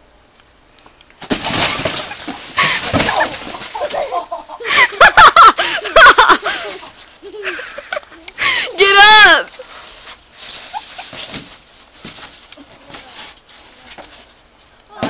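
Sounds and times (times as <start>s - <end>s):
styrofoam crunching and squeaking: 1.3s - 4.0s.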